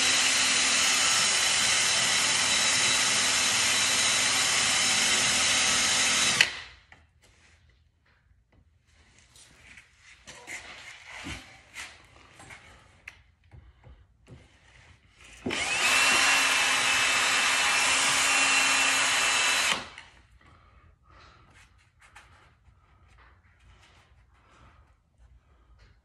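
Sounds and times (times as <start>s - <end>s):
power drill whining: 0.0s - 6.7s, 15.2s - 20.2s.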